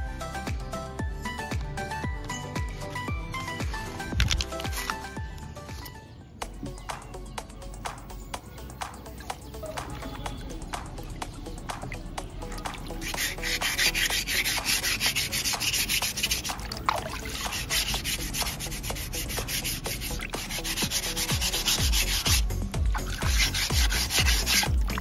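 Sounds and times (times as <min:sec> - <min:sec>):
sandpaper rubbing on cement: 0:12.7 - 0:25.0.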